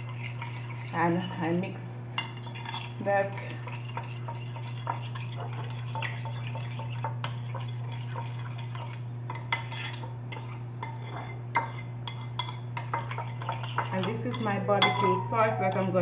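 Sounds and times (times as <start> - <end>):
metal spoon scraping a bowl: 0.0 - 1.5, 2.2 - 14.6
spoon clinking on bowl: 13.6 - 16.0.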